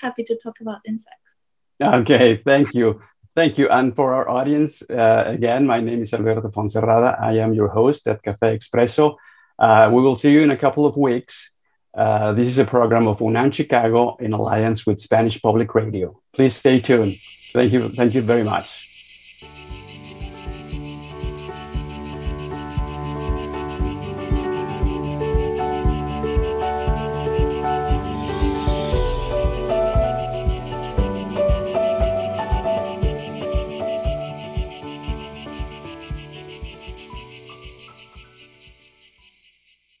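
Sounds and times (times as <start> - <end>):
cicada chorus pulsing: 16.7 - 40.0
outro music with steady beat: 19.4 - 38.8.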